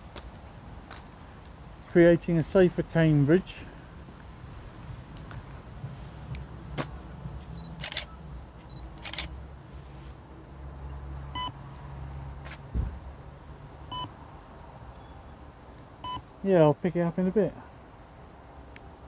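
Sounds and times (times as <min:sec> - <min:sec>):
steady low rumble: 0:00.0 - 0:09.3.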